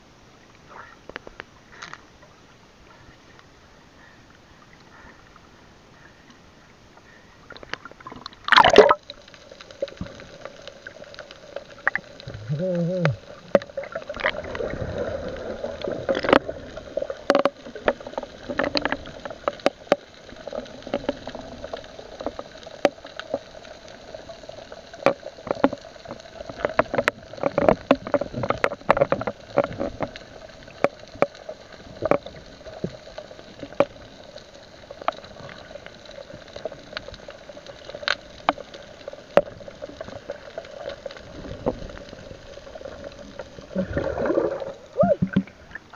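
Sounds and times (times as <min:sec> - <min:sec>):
steady underwater hum: 0:00.0 - 0:45.9
underwater bubbling: 0:00.0 - 0:45.9
sharp underwater clicks and knocks: 0:01.0 - 0:02.1, 0:15.8 - 0:23.5, 0:25.0 - 0:34.0, 0:36.6 - 0:45.9.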